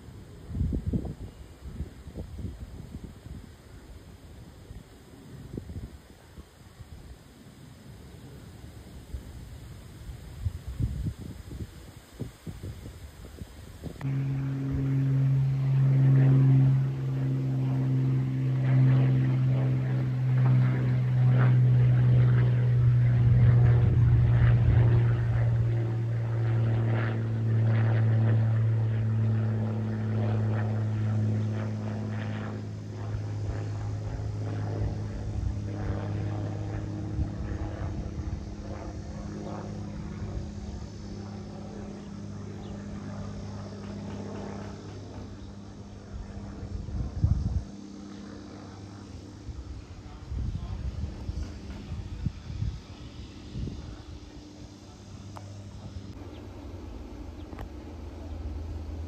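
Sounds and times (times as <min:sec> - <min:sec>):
propeller airplane engine drone: 0:00.0 - 0:59.0.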